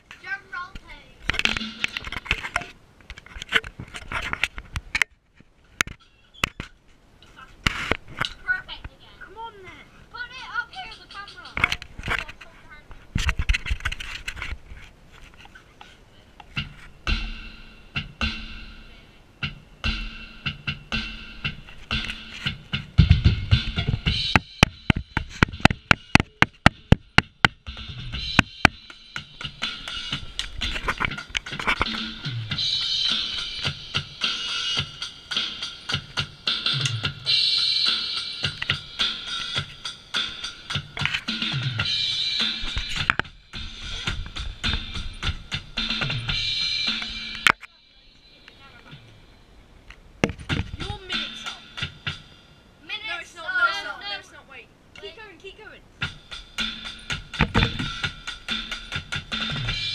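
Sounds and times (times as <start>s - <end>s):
drum kit played with sticks: 0.2s - 2.7s, 10.2s - 12.4s, 16.4s - 49.3s, 50.2s - 53.0s, 55.0s - 59.9s.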